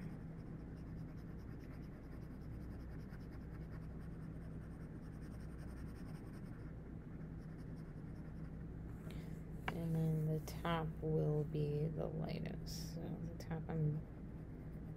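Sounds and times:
pencil scratching on paper: 0:00.0 - 0:08.6.

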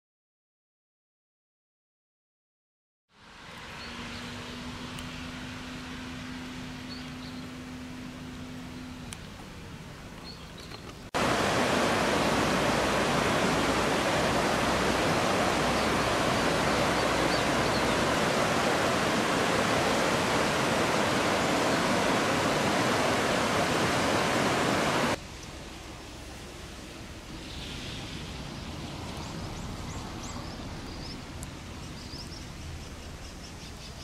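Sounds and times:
quiet outdoor ambience: 0:03.1 - 0:34.0
river rushing over rapids: 0:11.2 - 0:32.6.

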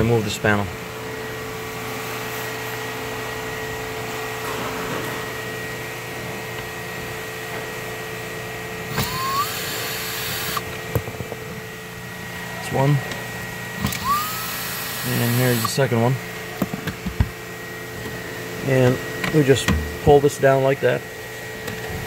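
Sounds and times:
steady fan-like hum: 0:00.0 - 0:22.0
cordless drill motor whine: 0:08.9 - 0:10.7, 0:13.8 - 0:15.8.

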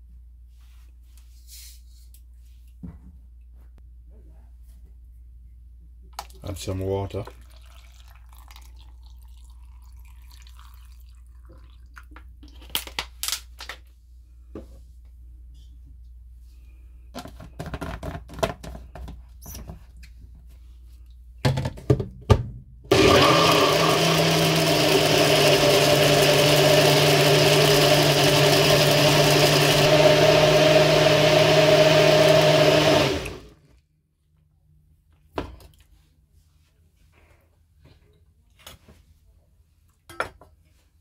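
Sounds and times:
blender motor running: 0:22.9 - 0:33.6.

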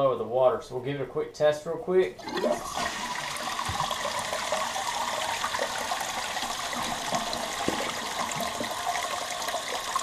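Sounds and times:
toilet tank refilling: 0:02.2 - 0:10.0.

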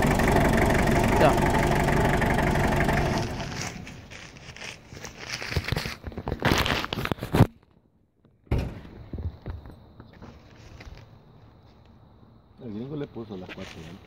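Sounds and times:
diesel engine idling: 0:00.0 - 0:04.4.

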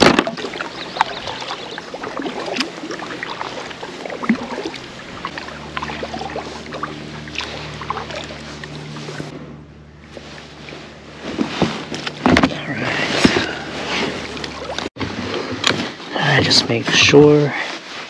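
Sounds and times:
kayak paddle dipping and dripping: 0:00.0 - 0:09.3, 0:10.0 - 0:15.0
small water splashes: 0:00.0 - 0:09.3, 0:13.1 - 0:15.0
faint low hum: 0:00.2 - 0:14.8.

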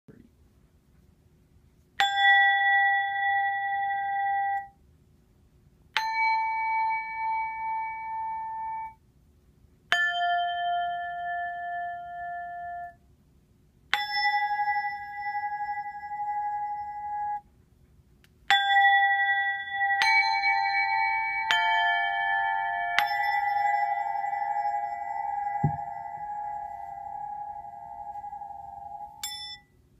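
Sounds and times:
cup bells ringing: 0:14.0 - 0:17.4, 0:18.5 - 0:29.7.

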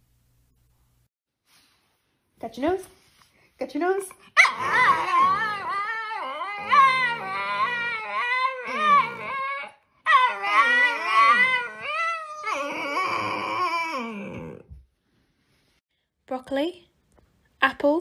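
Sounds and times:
dogs howling and whining: 0:04.4 - 0:14.7.

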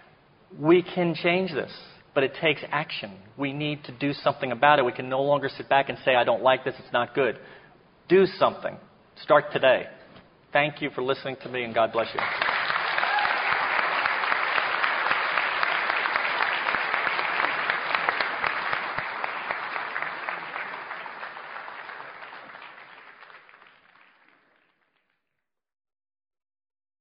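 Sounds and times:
audience applauding: 0:12.2 - 0:25.2.

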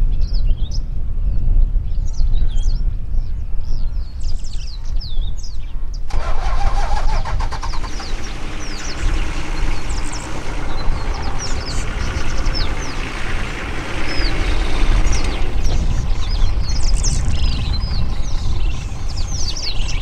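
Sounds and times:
birds chirping: 0:03.7 - 0:20.0
vehicle engine starting and running: 0:06.1 - 0:20.0.

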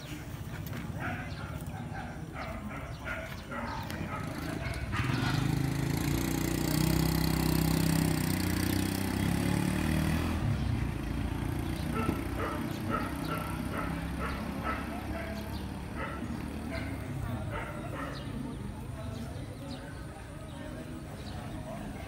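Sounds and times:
vehicle engine running: 0:03.8 - 0:18.9.

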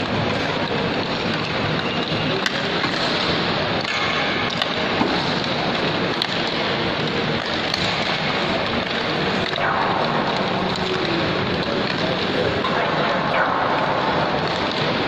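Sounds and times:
crowd hubbub: 0:00.0 - 0:15.0.

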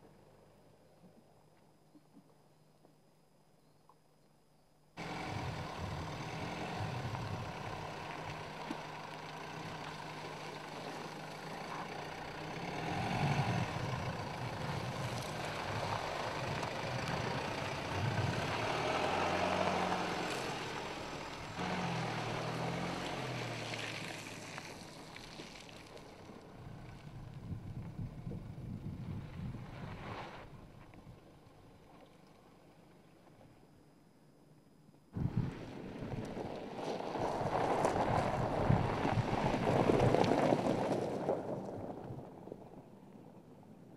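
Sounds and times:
diesel engine revving: 0:05.0 - 0:25.1.

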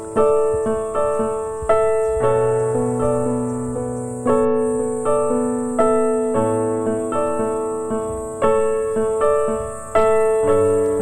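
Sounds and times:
slow gentle piano melody: 0:00.0 - 0:11.0.

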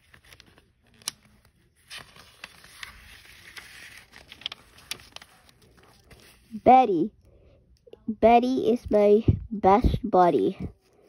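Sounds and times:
paper page rustling: 0:00.0 - 0:06.6.

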